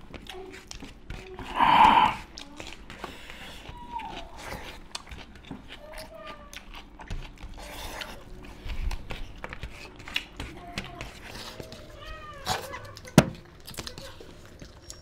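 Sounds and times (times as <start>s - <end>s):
fingers working food on plates: 0.0s - 15.0s
wet chewing and mouth clicks: 0.0s - 15.0s
short pitched throat sound: 1.4s - 2.2s.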